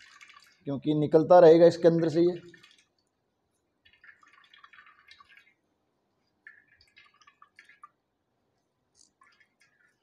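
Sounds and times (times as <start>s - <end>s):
liquid dripping into steel bowl: 0.0s - 0.9s, 2.0s - 8.3s.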